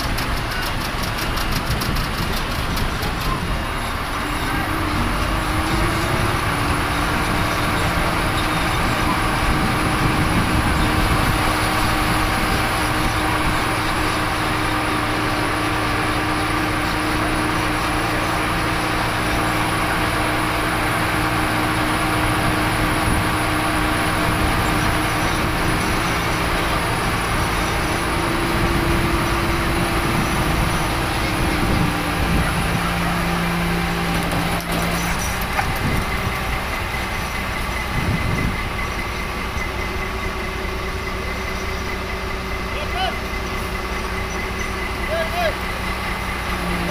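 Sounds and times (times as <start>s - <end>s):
diesel engine running under load: 0.0s - 46.9s.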